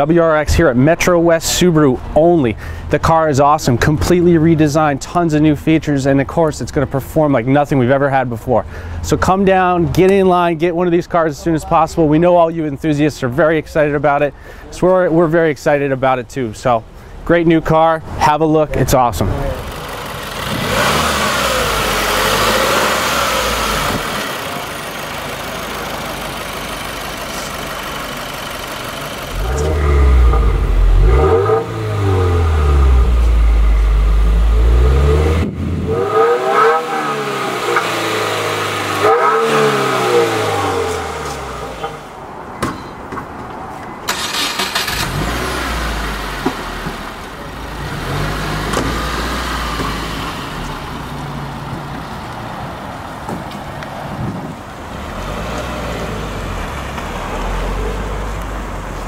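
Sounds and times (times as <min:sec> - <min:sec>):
car engine idling and revving: 0:18.7 - 0:42.4, 0:44.0 - 0:59.0.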